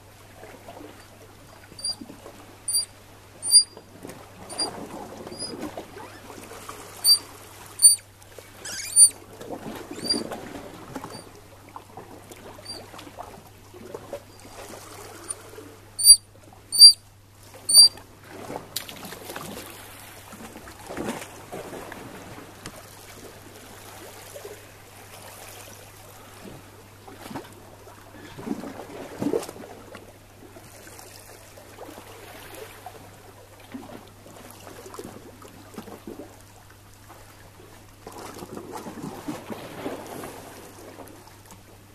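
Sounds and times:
otter squeaking whistles: 1.8 - 2.0, 2.7 - 3.8, 5.3 - 5.5, 7.0 - 7.2, 7.8 - 8.0, 8.6 - 9.2, 10.0 - 10.2, 16.0 - 17.0, 17.7 - 18.0
small water splashes: 16.8 - 26.4.

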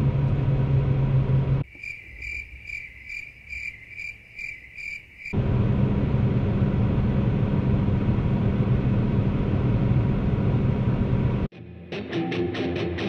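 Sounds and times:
tractor diesel engine drone: 0.0 - 1.8, 5.4 - 11.5.

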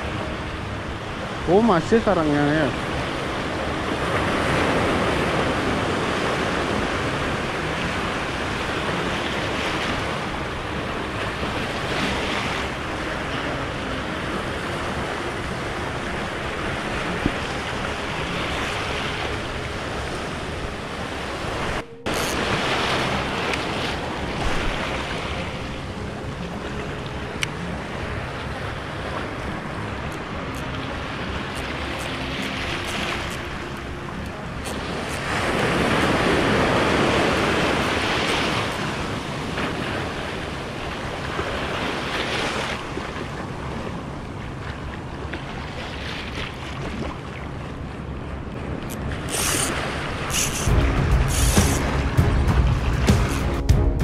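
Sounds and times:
small waves breaking: 0.0 - 53.5
wind on microphone: 48.0 - 54.0.

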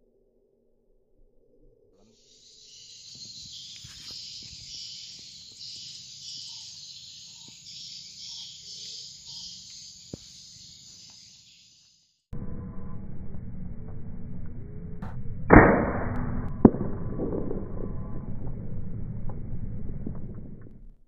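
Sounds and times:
insects buzzing: 2.0 - 12.1.

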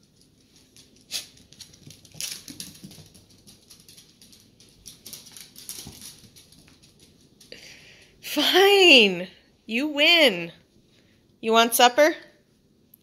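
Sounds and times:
dog claws pattering on hard floor: 0.0 - 7.5.

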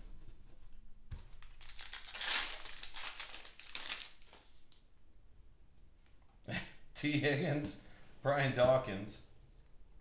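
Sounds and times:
foil wrapper crinkling and tearing: 1.4 - 4.8.

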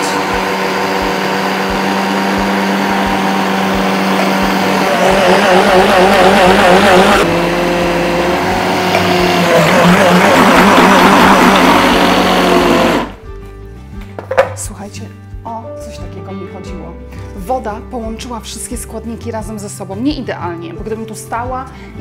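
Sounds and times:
food processor motor running: 0.0 - 13.2.

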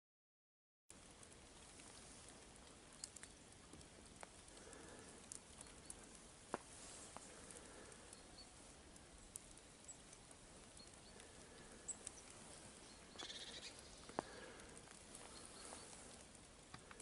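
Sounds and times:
faint high chirps: 11.8 - 14.1.

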